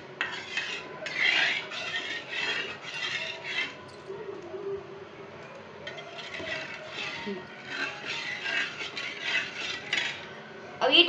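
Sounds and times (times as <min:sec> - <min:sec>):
spatula scraping thick pulp in pan: 0:00.0 - 0:03.8, 0:05.8 - 0:10.4.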